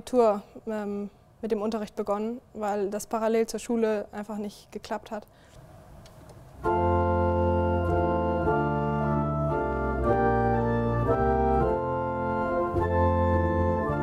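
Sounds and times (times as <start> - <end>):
pipe organ chords: 6.6 - 14.0.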